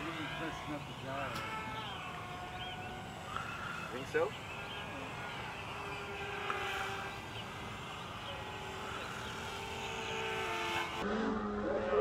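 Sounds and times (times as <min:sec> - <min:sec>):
drone motors and propellers humming: 0:00.0 - 0:12.0.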